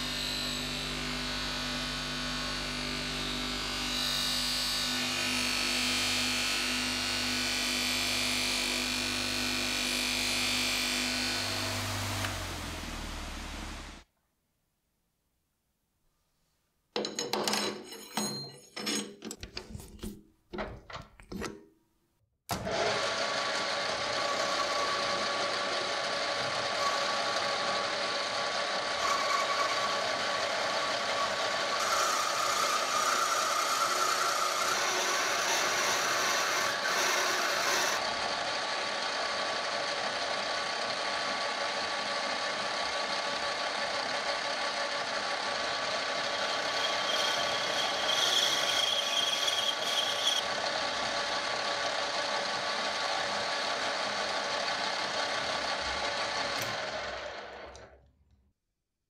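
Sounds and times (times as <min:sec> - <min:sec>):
lathe machining noise: 0:22.6 - 0:57.7.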